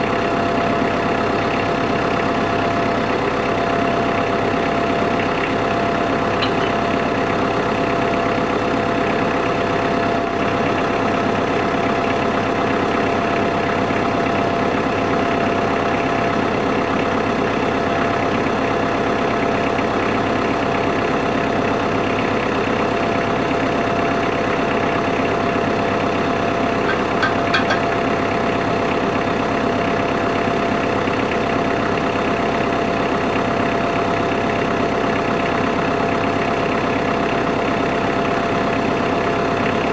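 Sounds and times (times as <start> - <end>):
tractor diesel engine running: 0.0 - 39.9
steady tone: 6.4 - 7.0.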